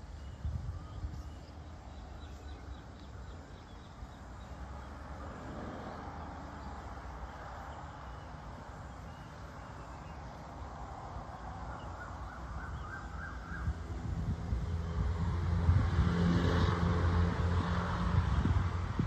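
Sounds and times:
low engine hum: 0.0 - 19.0
bird calls: 11.2 - 13.9.

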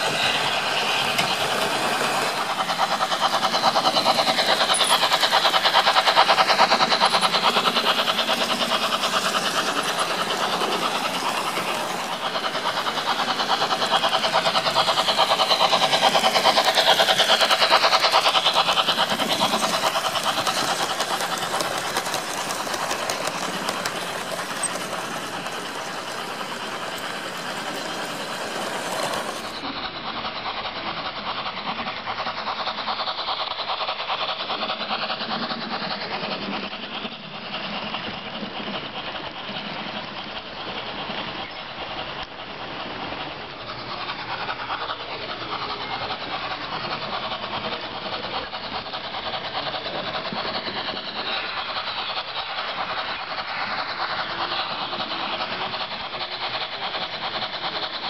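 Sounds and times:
model train wheels clattering on rails: 0.0 - 58.0.

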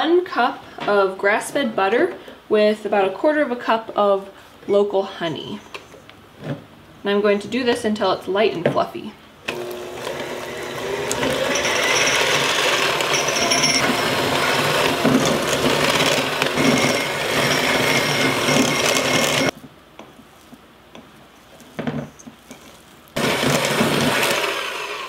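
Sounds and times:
electric hand mixer running: 9.5 - 19.5, 23.2 - 25.0
spatula scraping bowl: 10.2 - 24.4.

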